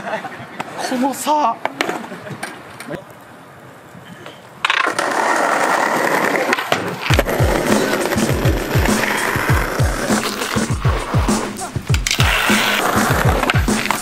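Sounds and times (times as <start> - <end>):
skateboard wheels rolling on paving: 0.0 - 14.0
hip-hop kick drum: 7.1 - 10.1, 13.0 - 13.8.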